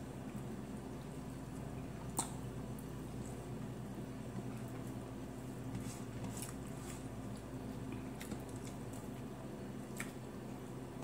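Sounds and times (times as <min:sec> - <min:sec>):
soft chewing: 0:00.0 - 0:11.0
steady low hum: 0:00.0 - 0:11.0
small wet clicks: 0:02.0 - 0:03.4.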